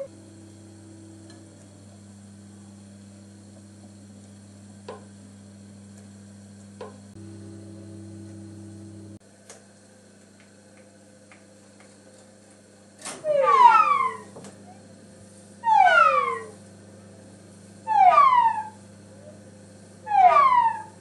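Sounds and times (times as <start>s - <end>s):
small electric motor humming: 0.0s - 9.2s.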